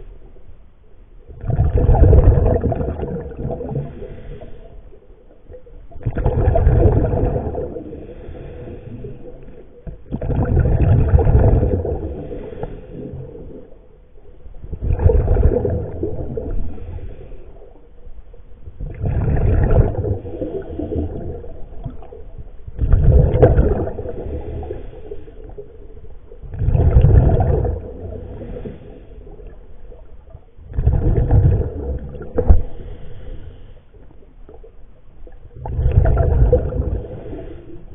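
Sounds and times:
exhaled bubbles underwater: 1.2 - 37.9
breathing through a regulator: 3.8 - 4.9, 7.9 - 9.8, 12.0 - 13.5, 16.6 - 17.8, 24.1 - 25.6, 28.2 - 29.5, 32.5 - 34.1, 37.0 - 37.9.

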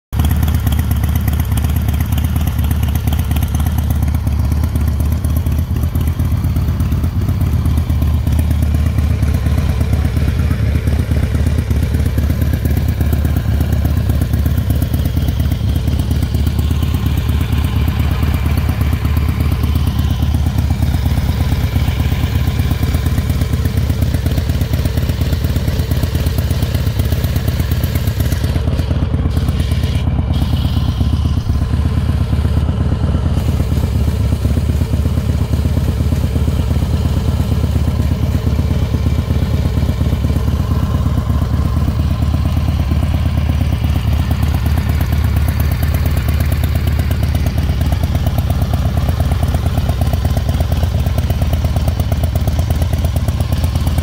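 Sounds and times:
motorcycle engine idling: 0.1 - 54.0.

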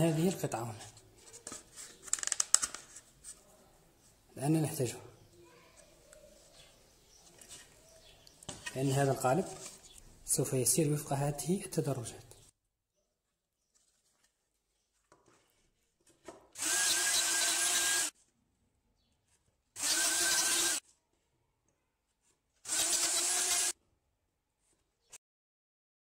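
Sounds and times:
plunge router cutting wood: 16.6 - 18.1, 19.8 - 20.8, 22.7 - 23.7.

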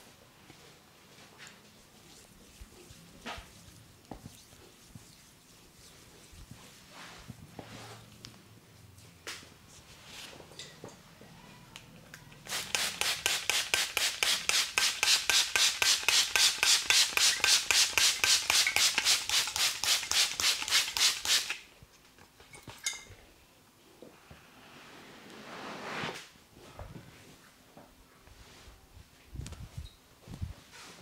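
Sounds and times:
quiet rubbing: 1.6 - 8.2.

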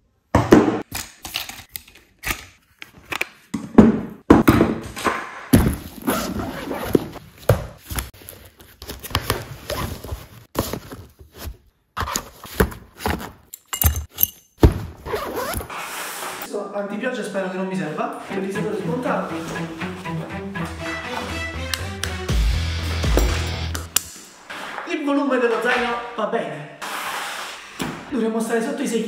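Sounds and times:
handling and rubbing noise: 15.0 - 16.5.

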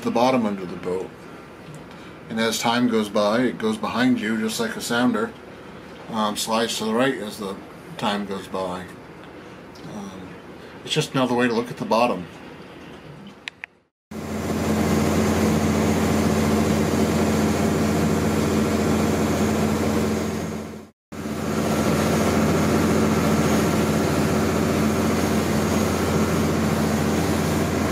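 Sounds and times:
boat engine droning: 14.1 - 27.9.

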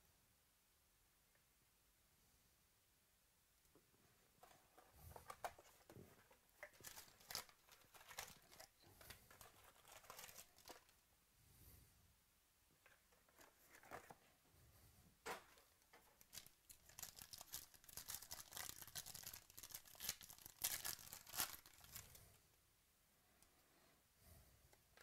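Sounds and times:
wrapping and cardboard crinkling: 4.3 - 11.0, 12.9 - 14.3, 15.3 - 22.4.

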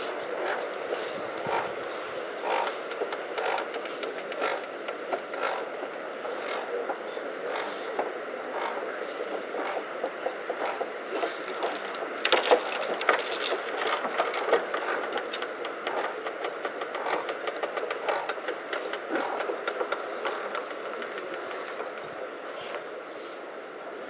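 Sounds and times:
dirt and gravel falling on coffin: 11.6 - 15.7.

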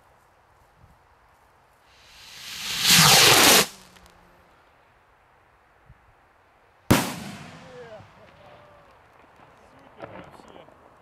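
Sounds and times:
firework rocket whoosh: 2.0 - 4.1
firework shell bang: 6.9 - 7.6.

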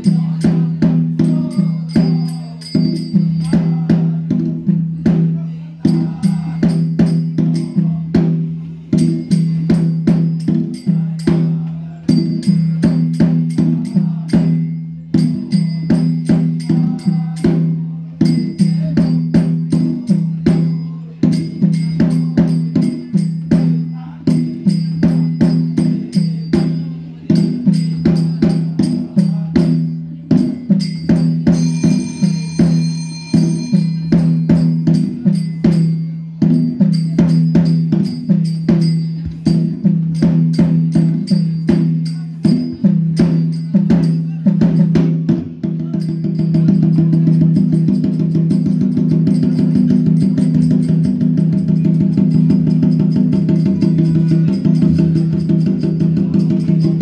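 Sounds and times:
fast percussion strikes: 0.0 - 57.0
brief higher ringing: 31.6 - 34.1.

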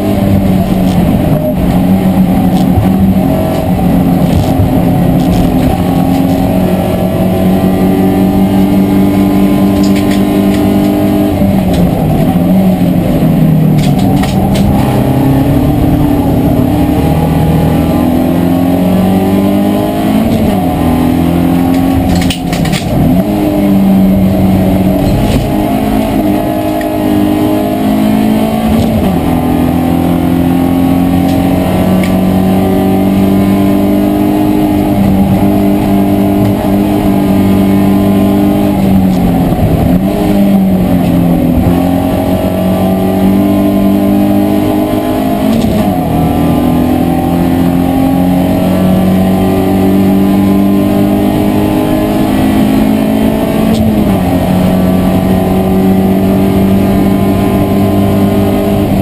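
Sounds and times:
race car engine at high revs: 0.0 - 59.0.

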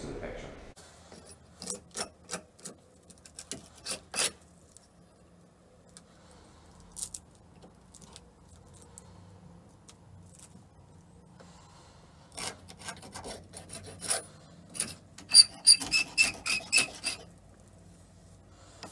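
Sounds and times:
tool scraping paint off wood: 1.1 - 4.4, 12.3 - 17.3.

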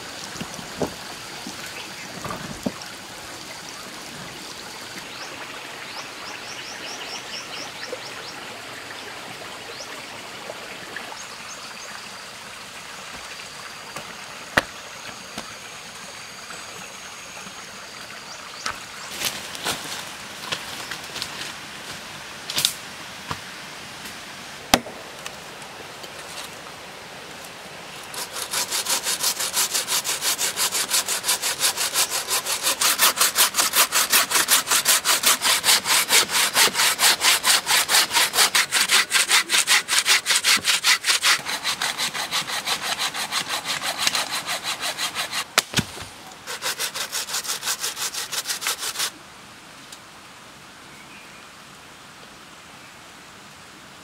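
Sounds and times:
hand saw cutting a log: 28.1 - 45.8, 46.4 - 49.1.

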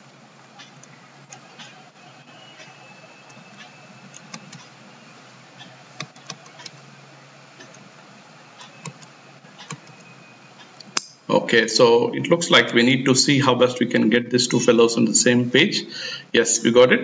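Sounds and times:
low hum and hiss: 0.0 - 17.0
mouse and keyboard clicks: 6.0 - 6.8, 8.6 - 10.1.

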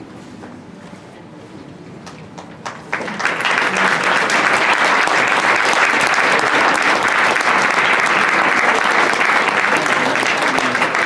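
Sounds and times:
audience applause: 2.6 - 11.0.

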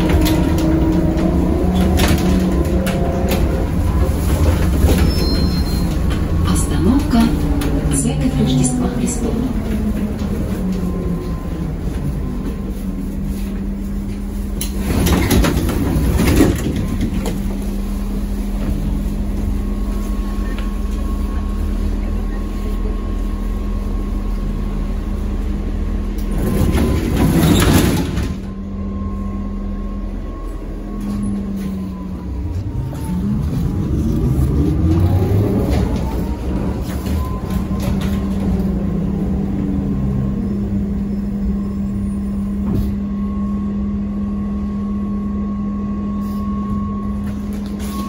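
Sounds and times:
trolleybus electrical hum: 0.0 - 48.0
traction motor whine rising: 29.2 - 42.0.

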